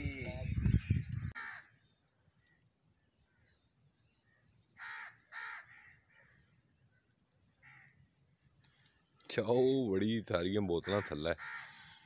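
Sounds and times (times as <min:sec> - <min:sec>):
crow cawing: 0:01.4 - 0:01.8, 0:04.8 - 0:06.6, 0:07.6 - 0:08.0, 0:10.8 - 0:12.0.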